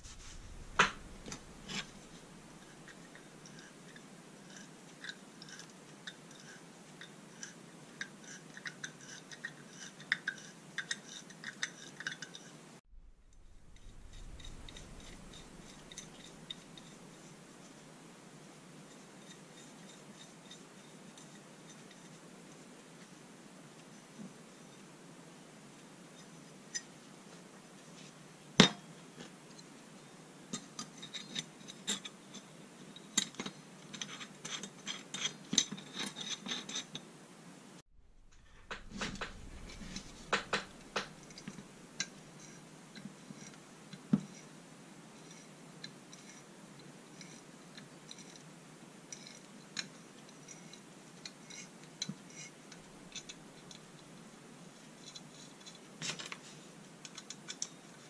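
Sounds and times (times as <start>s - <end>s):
sharp knock: 0.0s - 1.8s.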